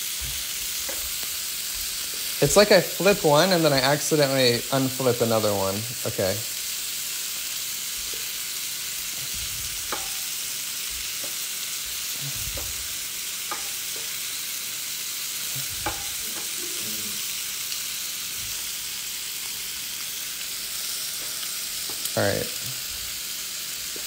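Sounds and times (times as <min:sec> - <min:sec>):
shrimp sizzling in a pan: 0:00.0 - 0:24.0
spatula scraping and knocking pan: 0:00.3 - 0:01.3, 0:09.1 - 0:10.4, 0:11.0 - 0:14.3, 0:15.6 - 0:16.6.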